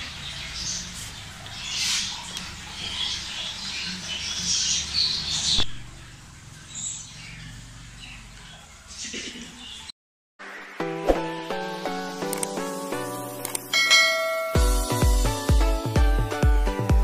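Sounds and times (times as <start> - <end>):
small birds chirping: 0.0 - 9.9
sharp click: 12.3 - 12.6, 13.4 - 13.7.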